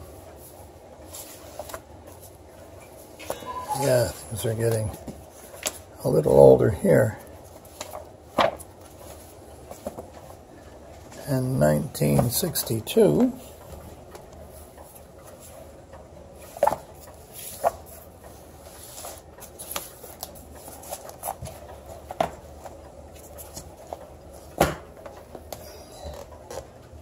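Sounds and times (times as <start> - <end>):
paper magazines rustling: 0.5 - 5.9, 7.1 - 11.2, 16.4 - 26.7.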